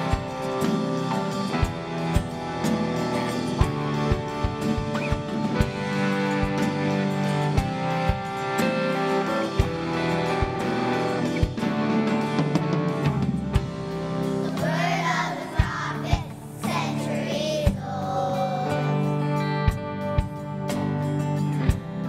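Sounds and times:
live band playing: 0:00.0 - 0:22.0
children's choir singing: 0:14.4 - 0:19.1.

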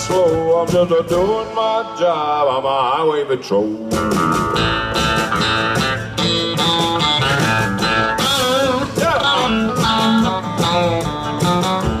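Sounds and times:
person singing: 0:00.0 - 0:04.1, 0:08.1 - 0:10.5
country band playing: 0:00.0 - 0:12.0
lap steel guitar sliding notes: 0:04.0 - 0:12.0.

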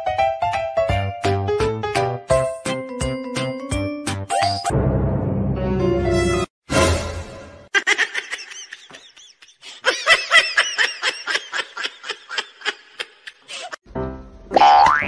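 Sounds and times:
person laughing high-pitched: 0:07.7 - 0:13.8.

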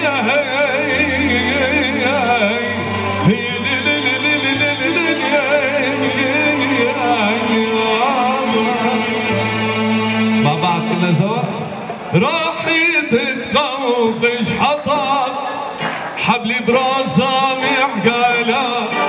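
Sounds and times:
steady bass: 0:00.0 - 0:11.8
keyboard melody: 0:00.0 - 0:19.0.

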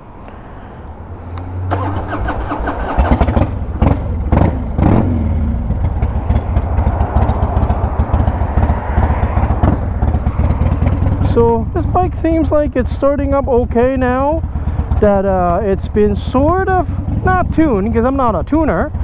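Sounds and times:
motorcycle engine cranking: 0:01.7 - 0:04.6
motorcycle engine revving and idling: 0:01.7 - 0:19.0.

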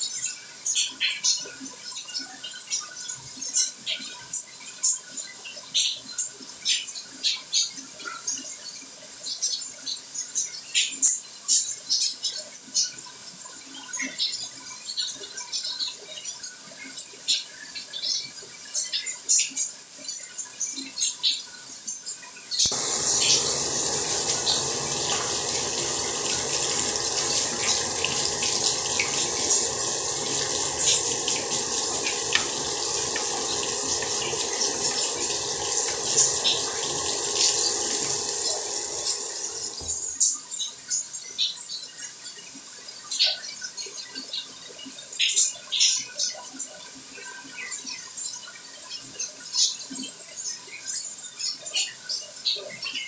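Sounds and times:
water dripping: 0:22.7 - 0:40.2
running water hissing: 0:22.7 - 0:40.3.

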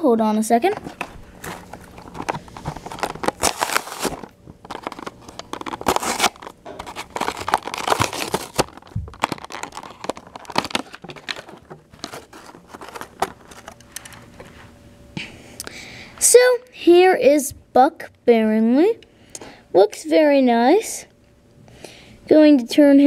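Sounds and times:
plastic packaging crinkling and tearing: 0:00.8 - 0:14.2.

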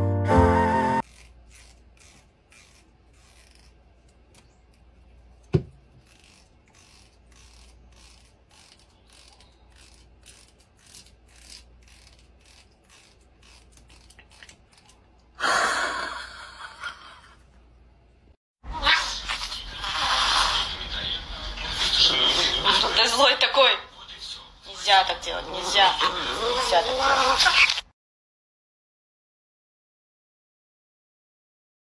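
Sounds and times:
comb scratching through fur: 0:01.0 - 0:15.1.

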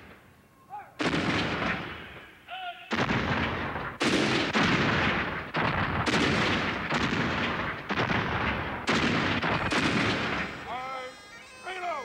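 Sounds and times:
cannon shots: 0:01.0 - 0:02.3, 0:02.9 - 0:10.8
gunshots: 0:01.0 - 0:02.3, 0:02.9 - 0:10.8.

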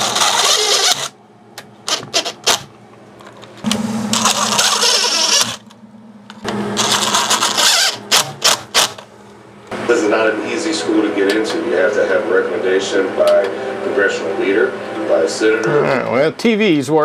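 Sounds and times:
cordless drill motor spinning: 0:00.0 - 0:01.2, 0:03.7 - 0:05.7, 0:06.4 - 0:09.0
drill clicks: 0:00.0 - 0:01.2, 0:03.6 - 0:05.8, 0:06.4 - 0:09.1.

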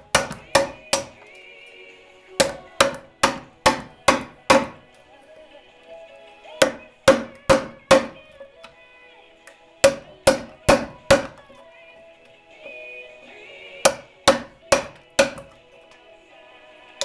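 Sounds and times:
hammer striking chisel: 0:00.0 - 0:01.4, 0:02.4 - 0:04.9, 0:06.4 - 0:08.8, 0:09.5 - 0:11.6, 0:13.8 - 0:15.7
faint music: 0:00.0 - 0:17.0.

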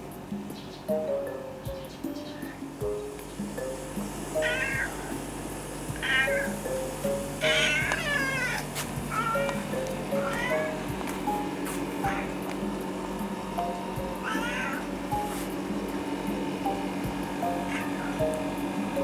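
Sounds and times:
light background music: 0:00.0 - 0:19.0
cat meowing: 0:04.4 - 0:05.2, 0:06.0 - 0:06.6, 0:07.4 - 0:10.9, 0:12.0 - 0:12.4, 0:14.2 - 0:14.9, 0:17.4 - 0:18.3.

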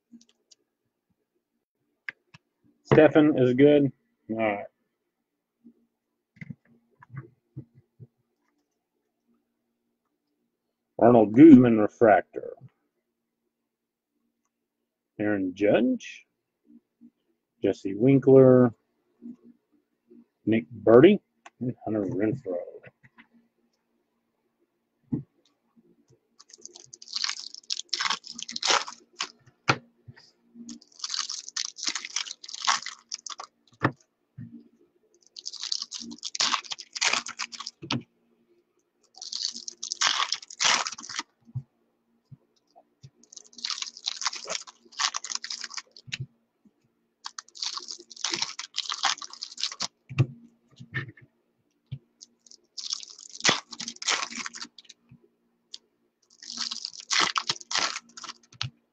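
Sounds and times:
foil wrappers crinkling and tearing: 0:26.4 - 0:29.4, 0:30.7 - 0:33.6, 0:35.3 - 0:38.0, 0:39.2 - 0:41.3, 0:43.2 - 0:46.2, 0:47.2 - 0:49.9, 0:52.4 - 0:54.9, 0:56.3 - 0:58.6.

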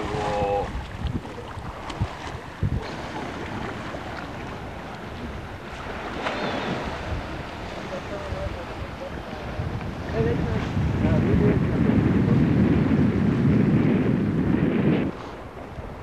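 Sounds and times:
rushing wind and sea: 0:00.0 - 0:16.0
wind buffeting microphone: 0:00.0 - 0:16.0.

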